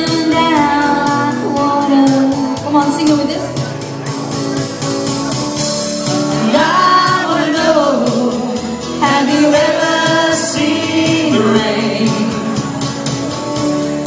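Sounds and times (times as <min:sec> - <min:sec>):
strummed acoustic guitar: 0:00.0 - 0:14.0
person singing: 0:06.3 - 0:12.9.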